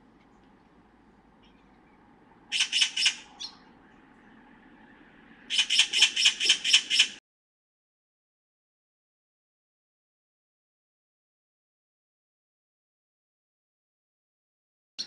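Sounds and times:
magpie chattering alarm call: 2.5s - 3.7s, 5.5s - 7.2s.

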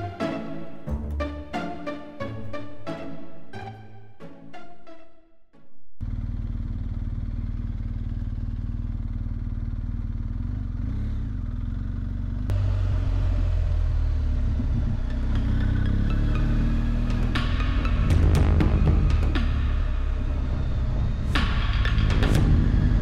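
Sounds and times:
motorcycle engine running: 6.0s - 23.0s.

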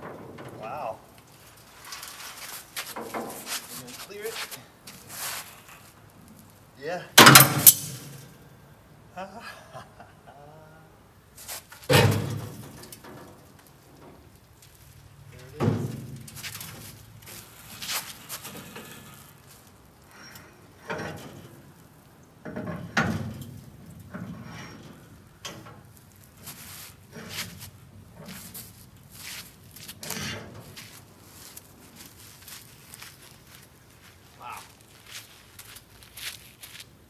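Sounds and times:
metal knocks and clatter: 0.0s - 0.6s, 7.2s - 8.2s, 20.8s - 21.7s, 22.4s - 25.9s.

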